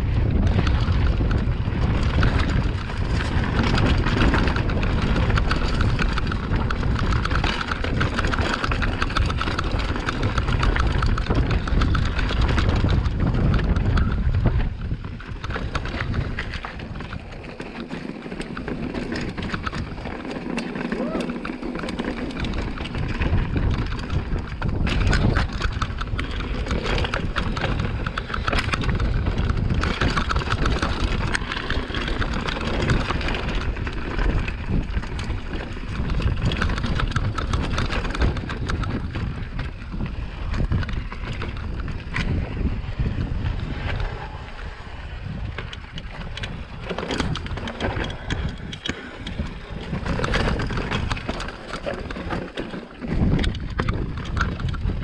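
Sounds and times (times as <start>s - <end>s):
bike rattling and knocking: 0.0s - 55.0s
wind rumbling on microphone: 0.0s - 55.0s
tyres rolling over rock: 15.4s - 42.4s, 46.0s - 55.0s.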